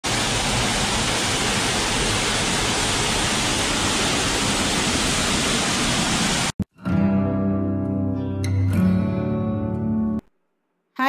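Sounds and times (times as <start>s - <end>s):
waterfall rushing: 0.0s - 6.5s.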